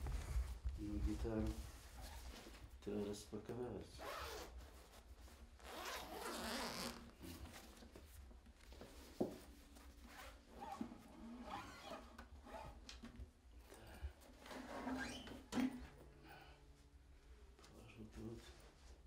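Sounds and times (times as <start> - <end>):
fabric rustling: 0.0 - 3.1, 4.0 - 10.8
zipper pulled open: 4.0 - 4.6, 5.6 - 7.2, 10.1 - 12.8.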